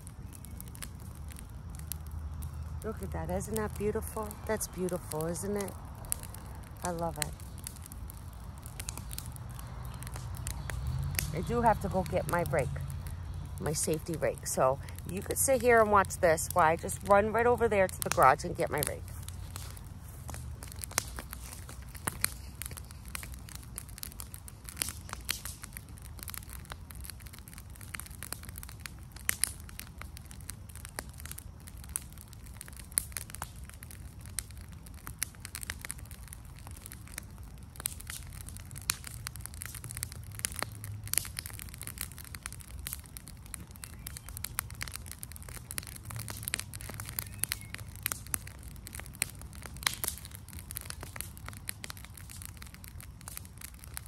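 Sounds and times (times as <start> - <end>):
fire crackling: 0.0 - 54.0
sharp pops and snaps: 0.0 - 54.0
steady low rumble: 0.8 - 28.6.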